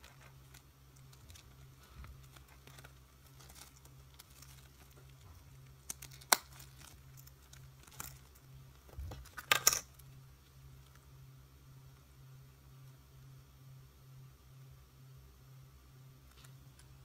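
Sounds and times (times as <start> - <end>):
plastic sleeves crinkling: 0.0 - 9.7.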